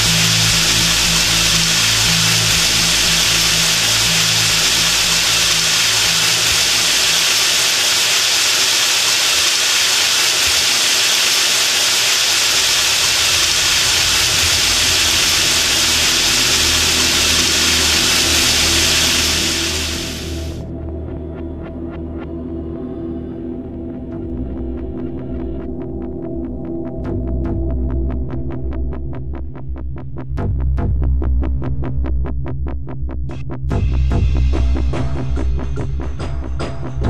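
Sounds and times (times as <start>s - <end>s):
water running into a bathtub: 0.0s - 20.6s.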